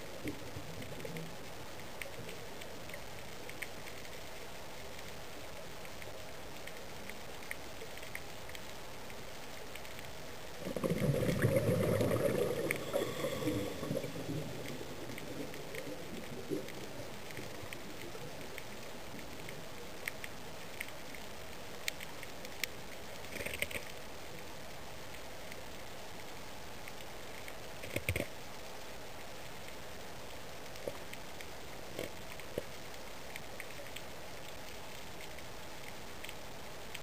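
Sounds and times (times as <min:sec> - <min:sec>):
underwater hiss: 0:10.6 - 0:17.6
low gurgling rush: 0:10.6 - 0:19.5.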